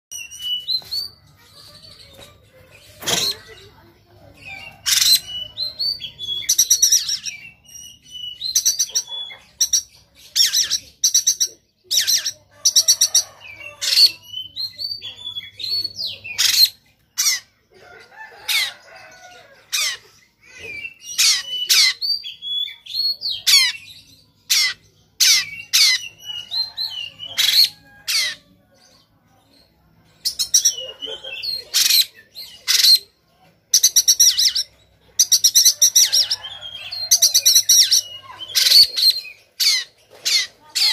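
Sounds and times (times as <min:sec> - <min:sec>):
bird singing harsh and whistled notes: 0:00.1 - 0:03.5, 0:04.4 - 0:17.5, 0:19.8 - 0:28.4, 0:33.8 - 0:40.9.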